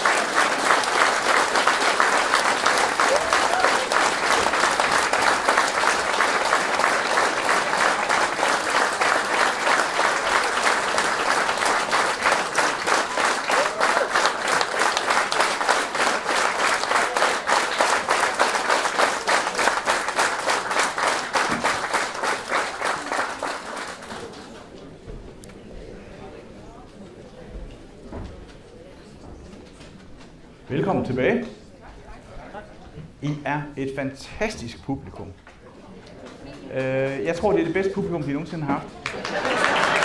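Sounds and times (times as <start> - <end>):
rhythmic clapping in time: 0.0 - 24.1
audience applauding: 0.0 - 24.7, 36.2 - 40.0.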